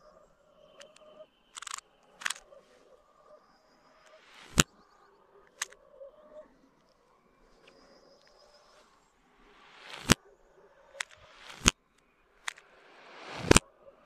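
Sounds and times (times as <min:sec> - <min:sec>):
reversed gunshots: 0:12.5 - 0:13.6.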